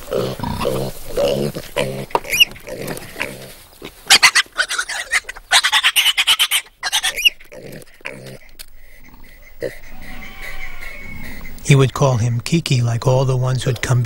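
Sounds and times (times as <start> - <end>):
piglets squealing: 0.0 - 3.5, 4.1 - 11.8
pig grunts: 0.0 - 5.2, 6.9 - 11.5.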